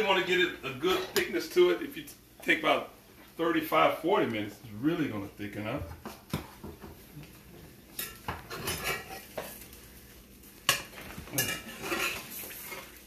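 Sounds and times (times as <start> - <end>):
metal spoon clinking cookware: 10.7 - 12.2.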